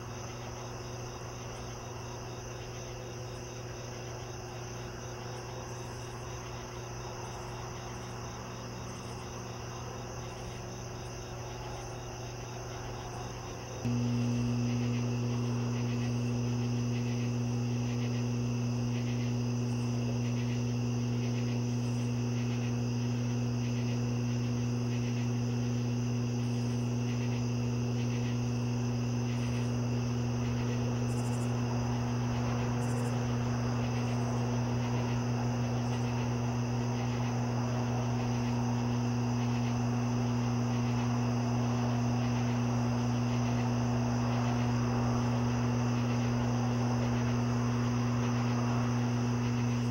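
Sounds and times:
crickets chirping: 0.0s - 49.9s
high insect trill: 0.0s - 49.9s
loud low hum: 13.8s - 49.9s.

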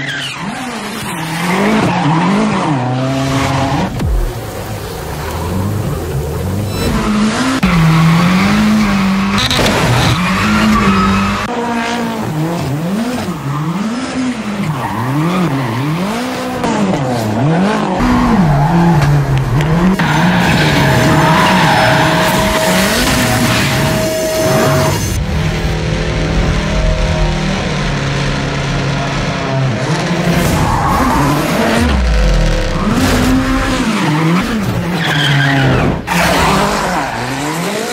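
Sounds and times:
car engine revving: 0.0s - 37.9s
tyre squeal: 20.0s - 25.2s
steady high tone: 20.2s - 25.3s.

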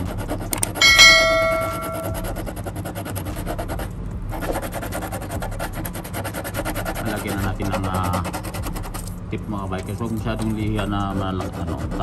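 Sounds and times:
knife blade scraping plastic: 0.0s - 0.8s
bell-like ding: 0.8s - 2.2s.

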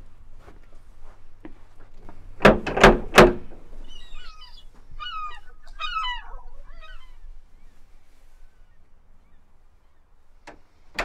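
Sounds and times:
bird twittering: 3.8s - 7.8s.

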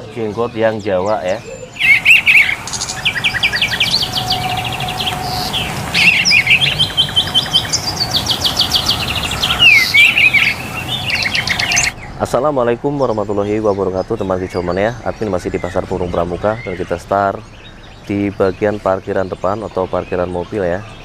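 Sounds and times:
songbirds chirping and trilling: 0.0s - 21.0s
steady hiss: 1.7s - 12.0s.

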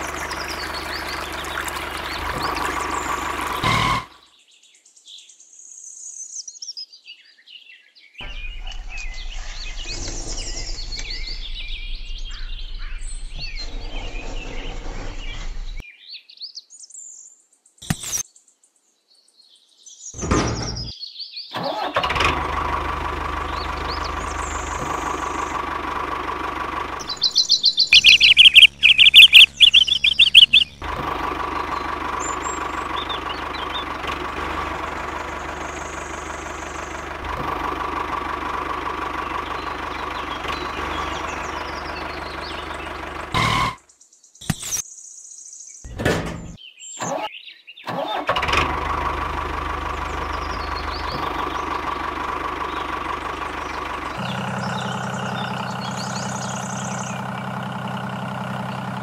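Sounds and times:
engine running: 0.0s - 4.2s, 8.2s - 15.8s, 21.6s - 43.8s, 45.9s - 47.2s, 47.9s - 59.0s
birds chirping: 0.0s - 5.4s, 6.2s - 16.9s, 17.7s - 48.0s, 48.6s - 59.0s.

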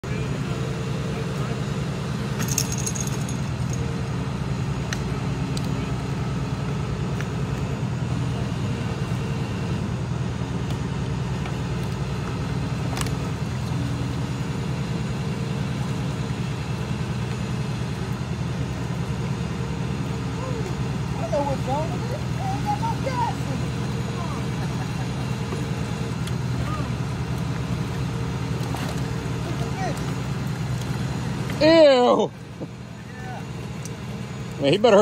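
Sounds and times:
engine idling: 0.0s - 35.0s.

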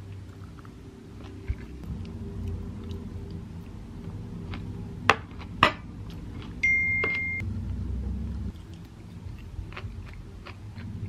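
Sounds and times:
low rumble: 0.0s - 11.0s
electronic beep: 6.6s - 7.4s.

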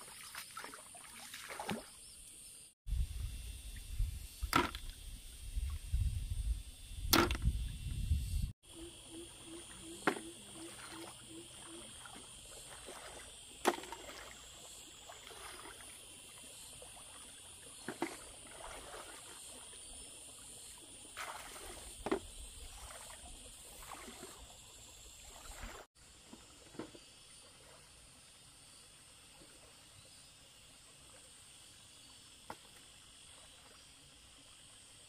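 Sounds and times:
water splashing and sloshing: 0.0s - 2.4s, 9.3s - 28.4s.

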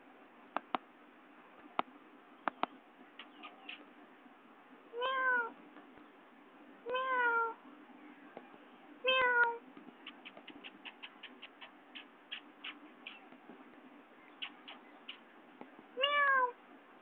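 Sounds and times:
cat meowing: 5.0s - 5.5s, 6.9s - 7.6s, 9.1s - 9.6s, 16.0s - 16.6s.

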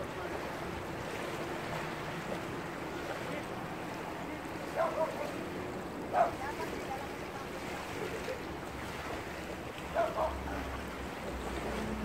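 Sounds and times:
shallow lagoon water: 0.0s - 12.0s
wind: 0.0s - 12.0s.

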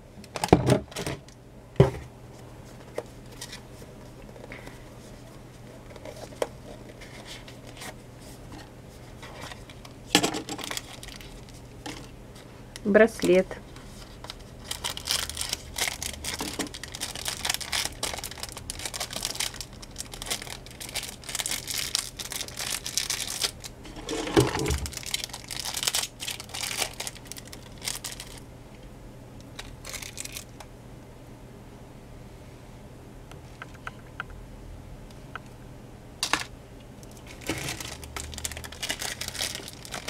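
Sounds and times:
plastic packaging crinkling: 9.2s - 12.1s, 13.9s - 28.5s, 29.5s - 30.7s, 36.2s - 40.0s.

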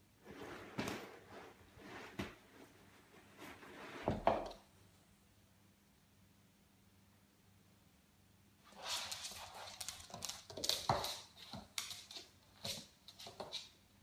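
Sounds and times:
rustling and scuffing on bean bag: 0.2s - 4.3s.

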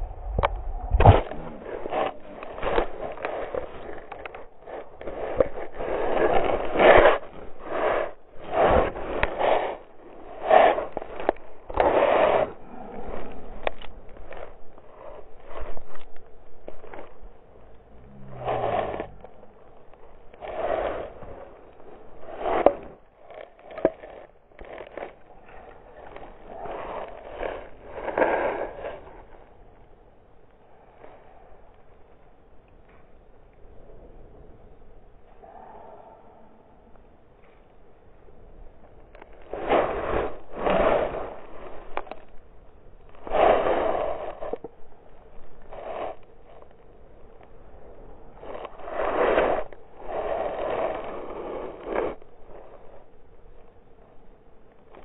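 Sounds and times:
rough scraping and rustling: 0.0s - 32.1s, 37.7s - 55.0s
bike crash scraping and tumbling: 0.9s - 9.8s.

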